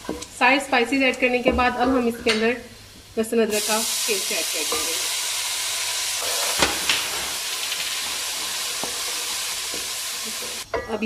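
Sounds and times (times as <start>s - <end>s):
hot oil sizzling in a pot: 2.8s - 10.7s.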